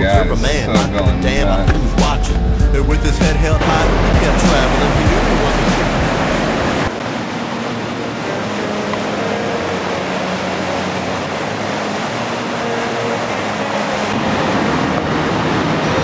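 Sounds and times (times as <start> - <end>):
ocean surf roaring: 3.2 - 16.0.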